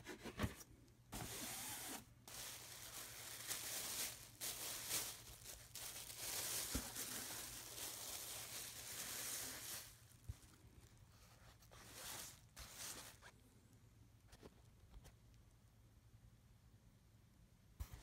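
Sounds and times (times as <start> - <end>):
plastic wrap crinkling: 1.2 - 13.3.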